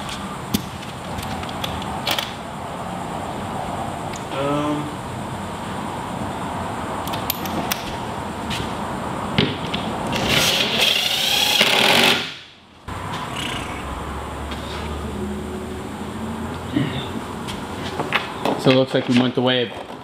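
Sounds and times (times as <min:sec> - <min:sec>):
cordless drill running: 0:10.2 - 0:12.2.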